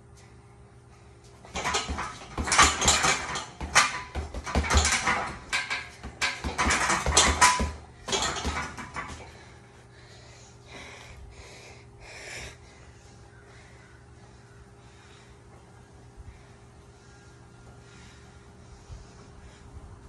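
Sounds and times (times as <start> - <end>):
punches thudding on heavy bag: 1.5 - 9.3.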